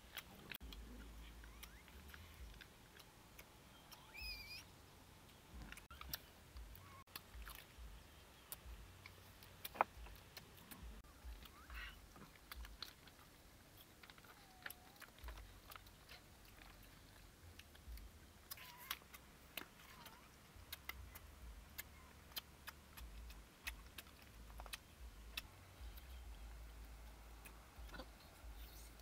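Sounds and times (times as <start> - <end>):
short squeaky calls: 3.8 - 4.7
animal chewing: 5.6 - 29.0.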